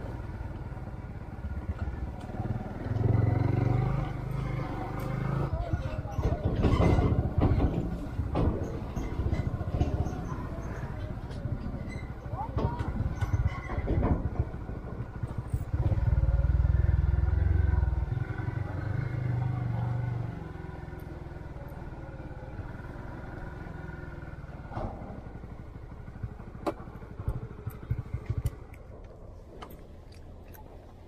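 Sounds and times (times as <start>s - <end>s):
scooter engine running: 25.2s - 28.9s.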